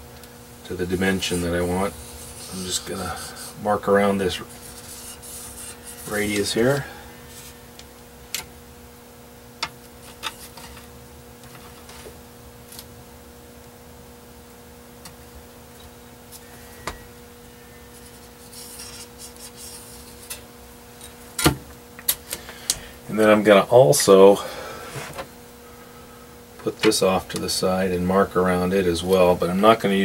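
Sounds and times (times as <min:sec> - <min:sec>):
electrical hum: 0:00.0 - 0:30.0
marker scratching on metal: 0:01.0 - 0:07.6, 0:17.9 - 0:20.4.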